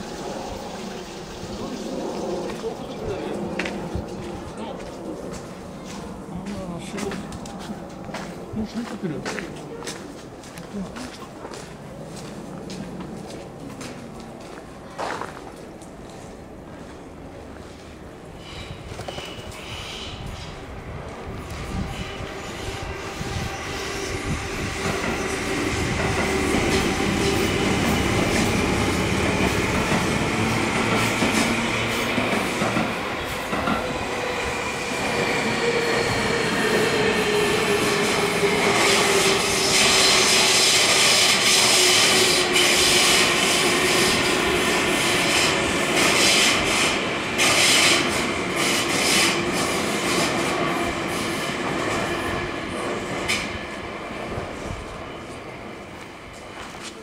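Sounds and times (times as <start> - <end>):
train wheels rumbling and clacking: 17.6 - 57.0.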